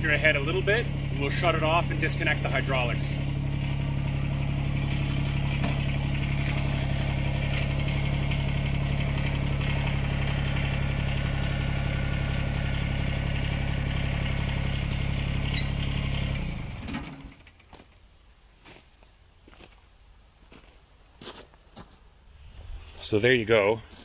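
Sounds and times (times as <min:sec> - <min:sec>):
tractor diesel engine running: 0:00.0 - 0:21.1.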